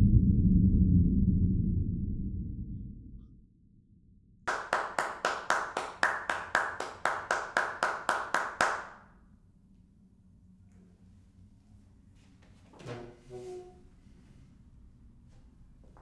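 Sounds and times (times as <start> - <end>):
person clapping hands: 4.5 - 9.0.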